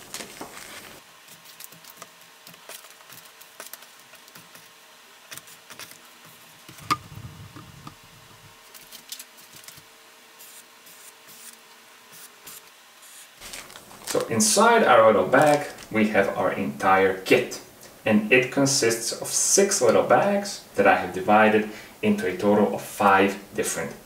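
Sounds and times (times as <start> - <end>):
plastic bags crinkling: 0.0 - 4.6, 13.4 - 16.0
faint steady hum: 0.0 - 24.0.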